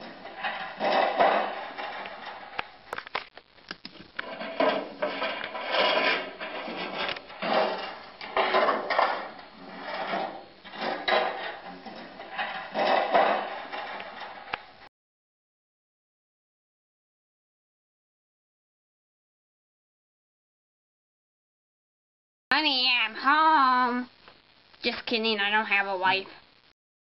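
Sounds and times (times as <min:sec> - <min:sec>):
scraping on wood: 0:00.0 - 0:14.9.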